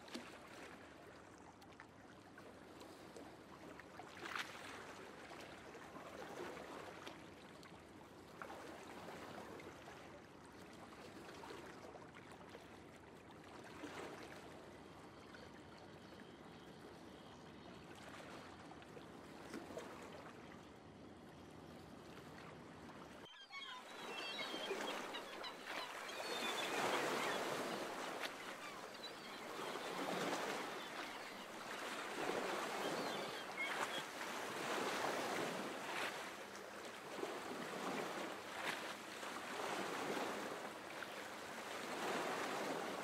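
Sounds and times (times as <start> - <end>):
water splashes: 0.0 - 15.5, 17.9 - 20.6.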